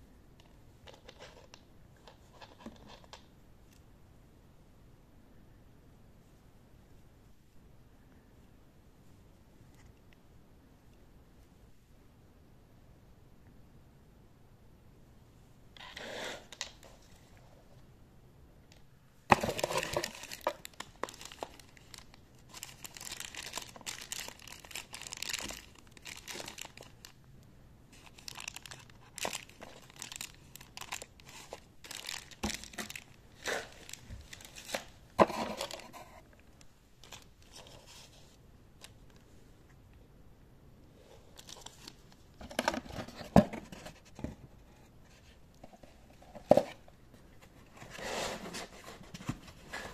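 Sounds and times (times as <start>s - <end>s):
plastic and cardboard crinkling: 19.3s - 27.2s, 27.9s - 36.3s.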